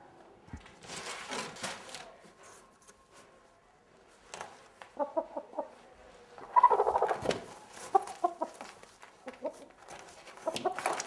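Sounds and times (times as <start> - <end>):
chicken clucking: 4.9 - 5.8, 6.4 - 11.0.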